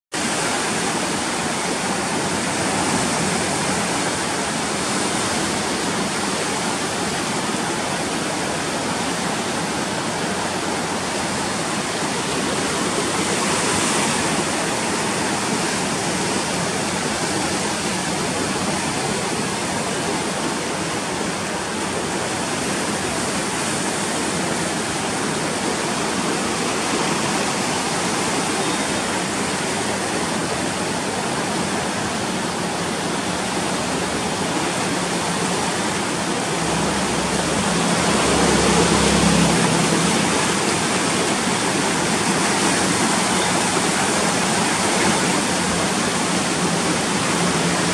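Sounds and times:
river water rushing: 0.1s - 47.9s.

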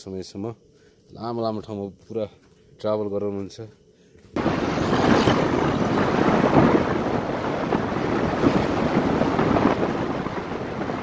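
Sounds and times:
wind buffeting microphone: 4.4s - 11.0s.

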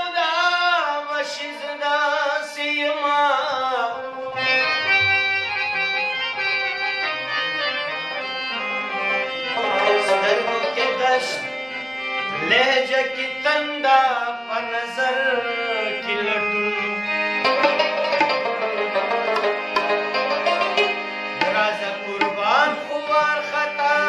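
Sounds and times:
man singing: 0.0s - 4.8s, 9.5s - 18.0s, 20.6s - 24.0s
held instrumental tones: 15.8s - 24.0s.

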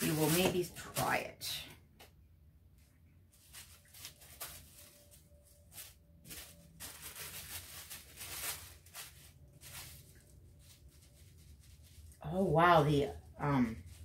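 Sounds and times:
paper rustling: 0.0s - 1.2s, 3.3s - 12.2s.

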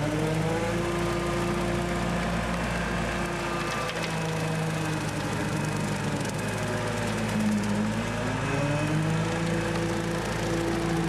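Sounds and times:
tractor diesel engine under load: 0.0s - 11.0s.

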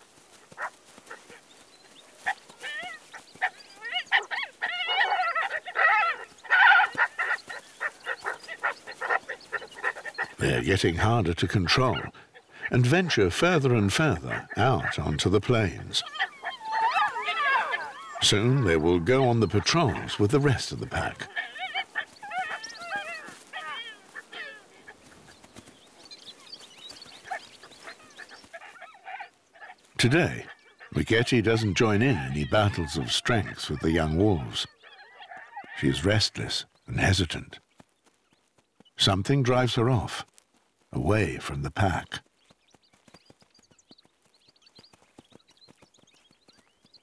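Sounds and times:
wolves yipping: 0.3s - 11.1s, 11.7s - 36.6s
wolves squealing and whining: 2.2s - 10.4s, 14.1s - 26.0s, 27.2s - 36.0s.

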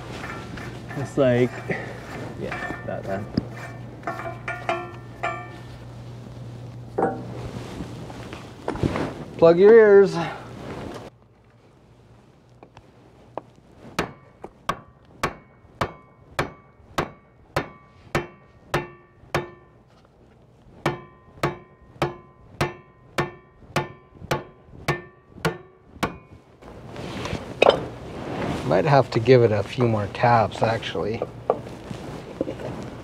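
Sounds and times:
hammer tapping ringing metal propeller: 0.2s - 5.8s, 14.0s - 19.8s, 20.8s - 26.4s.

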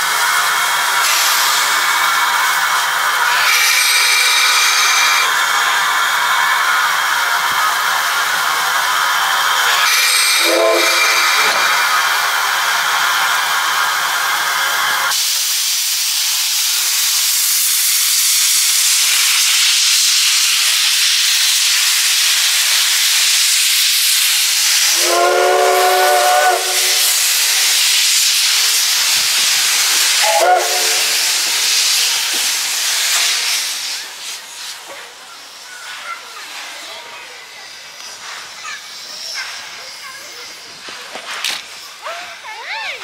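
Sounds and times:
steam locomotive hissing: 0.0s - 43.0s
steam whistle blast: 9.8s - 12.0s, 24.8s - 27.3s, 30.1s - 31.4s.

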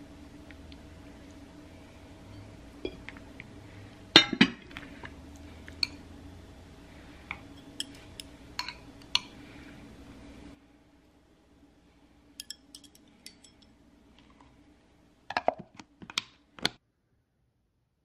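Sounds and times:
faint hum: 0.0s - 18.0s
metal chopsticks clicking on glass: 12.4s - 13.6s.

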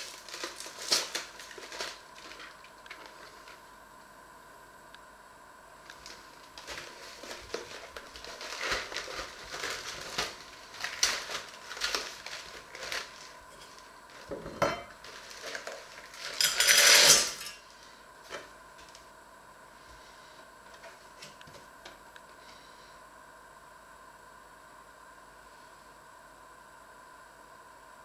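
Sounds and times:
clicks and rustles: 5.9s - 14.3s
cardboard carton being opened: 6.0s - 13.3s
frozen vegetables rattling into saucepan: 6.6s - 14.4s, 15.0s - 17.6s.

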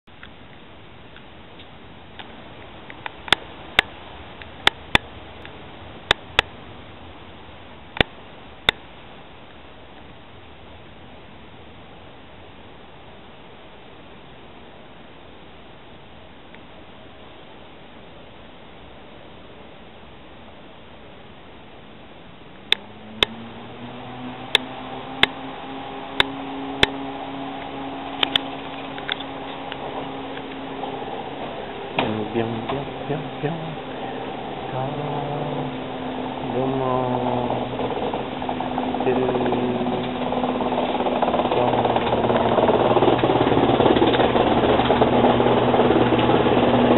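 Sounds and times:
train running noise: 22.8s - 46.9s
sharp clicks: 27.6s - 30.6s
train wheels clicking over rail joints: 37.8s - 46.9s.

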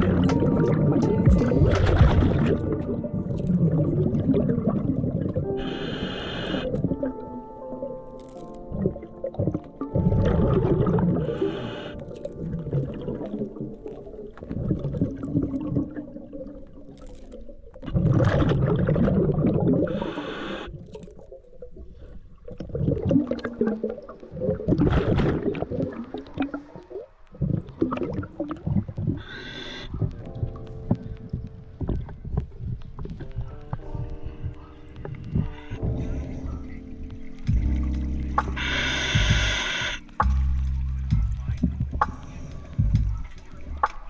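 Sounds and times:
bubbles rumbling underwater: 0.0s - 5.6s, 8.7s - 29.3s, 29.9s - 43.9s
regulator inhalation hiss: 5.6s - 6.7s, 11.3s - 12.0s, 19.9s - 20.7s, 29.2s - 29.9s, 38.6s - 40.0s.

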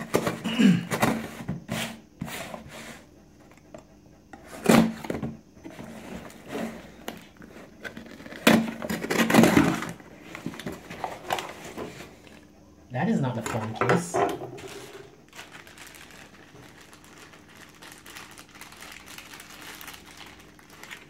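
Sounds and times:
cardboard scraping and rustling: 1.0s - 3.0s, 4.4s - 12.2s, 14.5s - 15.1s.

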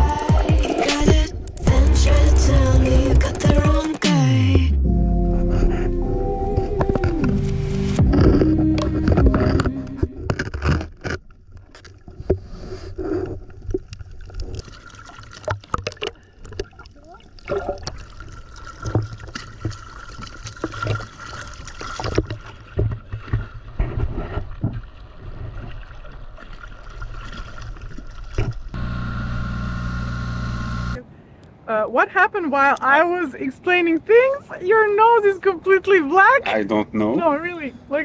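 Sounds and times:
water splashing and sloshing: 6.5s - 28.8s.

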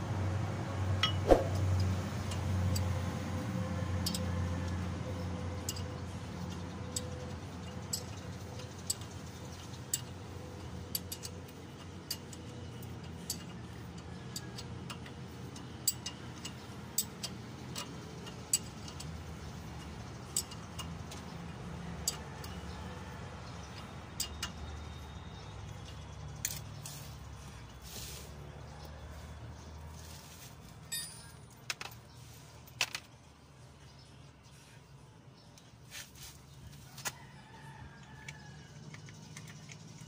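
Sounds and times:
metallic wrench clicks: 4.0s - 4.3s, 5.6s - 13.6s, 14.3s - 19.1s, 19.7s - 21.3s, 22.0s - 22.7s, 23.7s - 24.7s.

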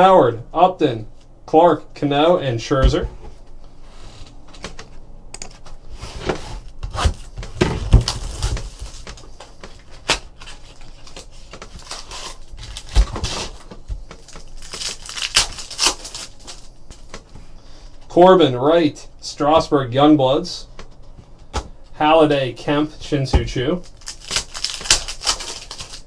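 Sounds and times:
foil wrapper crinkling: 7.9s - 17.2s, 23.8s - 26.0s.

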